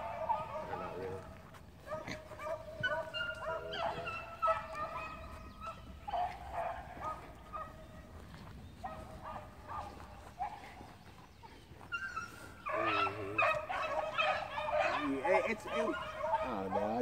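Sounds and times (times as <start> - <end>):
dogs baying and howling: 0.0 - 17.0.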